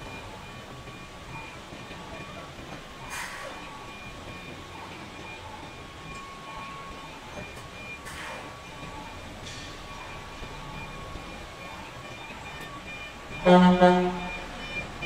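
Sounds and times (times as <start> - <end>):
truck diesel engine rumbling: 0.0 - 15.0
high-pitched reversing beep: 3.0 - 15.0.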